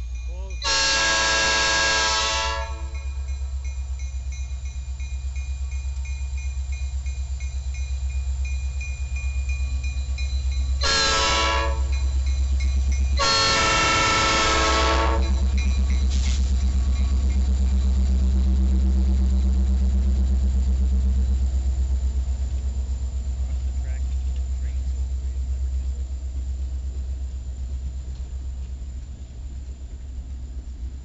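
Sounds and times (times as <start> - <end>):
freight train rumbling: 0.0 - 31.0
locomotive air horn: 0.6 - 3.1, 10.8 - 12.1, 13.2 - 15.5.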